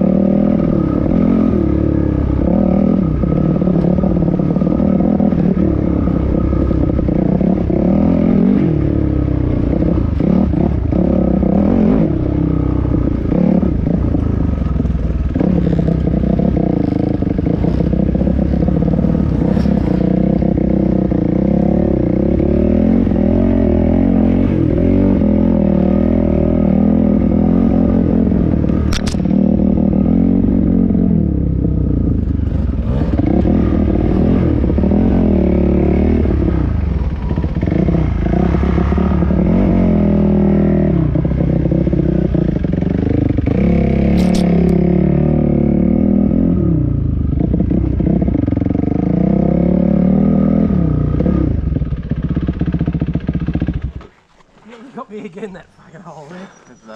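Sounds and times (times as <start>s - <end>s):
dirt bike engine revving: 0.0s - 56.9s
sharp click: 28.8s - 29.3s, 44.1s - 44.8s.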